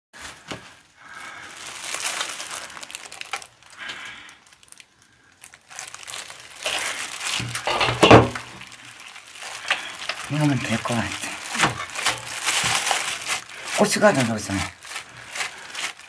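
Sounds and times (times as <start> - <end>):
plastic gloves crinkling: 0.2 - 16.0
metal knocks: 7.4 - 8.5.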